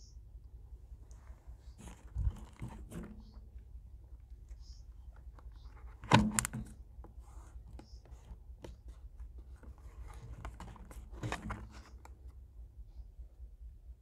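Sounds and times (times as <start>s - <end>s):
cardboard carton handling: 1.7s - 3.5s, 5.2s - 12.1s.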